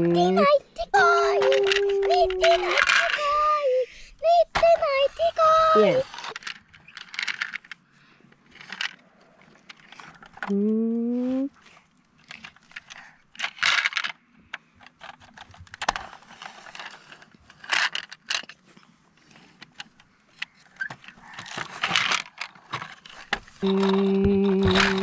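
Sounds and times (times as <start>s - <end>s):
plastic toy pieces rattling: 0.3s - 7.8s, 8.5s - 9.0s, 12.2s - 14.2s, 14.8s - 18.7s, 19.6s - 25.0s.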